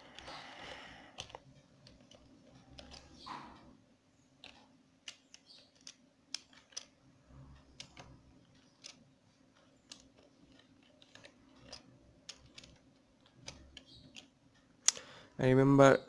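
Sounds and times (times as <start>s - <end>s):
computer keyboard keystroke clicks: 0.0s - 3.4s, 7.6s - 9.0s, 9.8s - 14.3s.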